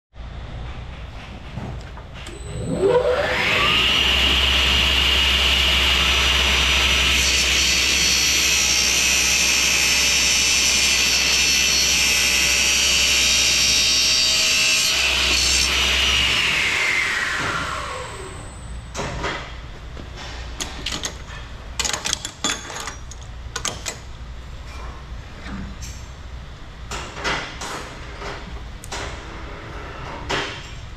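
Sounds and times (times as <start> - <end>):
chop saw motor whine: 2.3 - 18.8.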